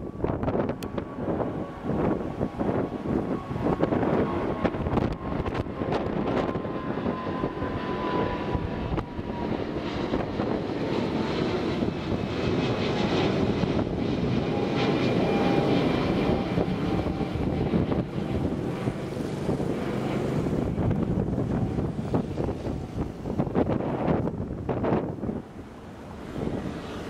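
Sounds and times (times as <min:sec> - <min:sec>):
thin whining tone dropping in pitch: 0:00.0 - 0:19.0
jet engines roaring overhead: 0:00.0 - 0:27.0.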